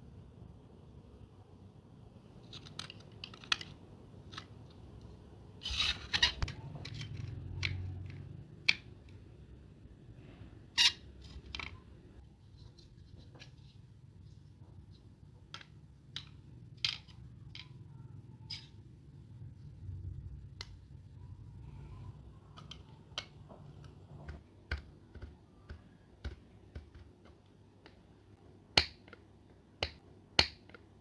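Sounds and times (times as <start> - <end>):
faint low hum: 0.0 - 31.0
small clicks and taps: 22.5 - 28.1.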